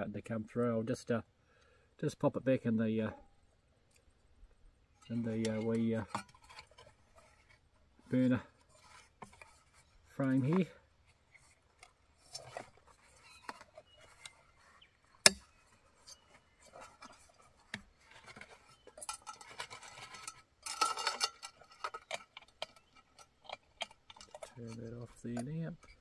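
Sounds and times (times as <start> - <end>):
metallic clicks and clinks: 18.2 - 26.0.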